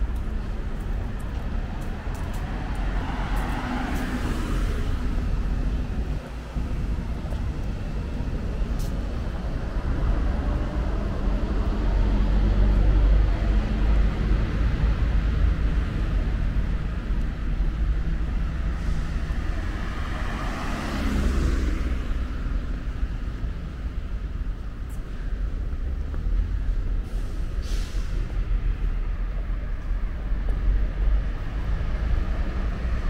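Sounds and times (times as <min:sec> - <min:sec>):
traffic rumble: 0:00.0 - 0:33.0
car passing close by: 0:02.6 - 0:05.3, 0:18.7 - 0:22.5.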